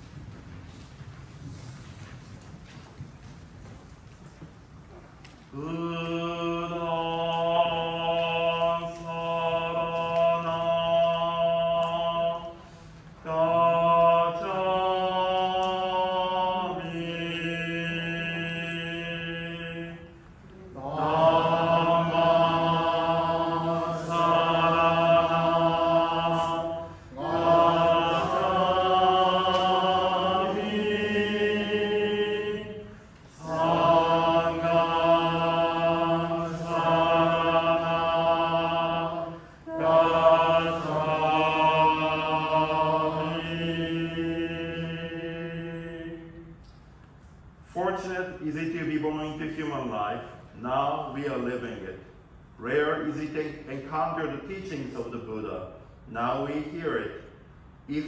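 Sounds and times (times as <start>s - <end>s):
chanting in long sung phrases: 5.6s - 46.5s.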